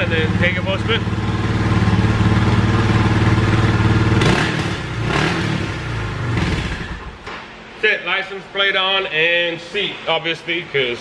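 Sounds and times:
motorcycle engine revving: 0.0s - 7.2s.

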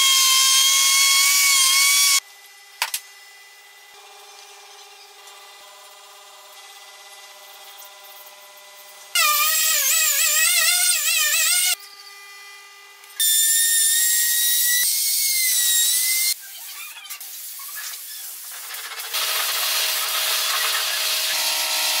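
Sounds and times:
router cutting wood: 0.0s - 2.2s, 9.2s - 12.6s, 19.2s - 22.0s
power tools whining: 19.1s - 22.0s.

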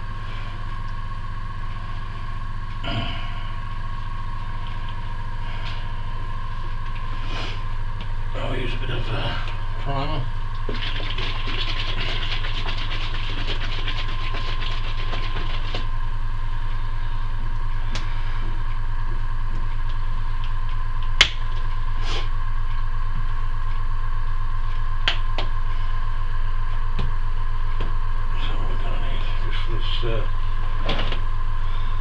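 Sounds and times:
airbrush compressor humming: 0.0s - 20.9s.

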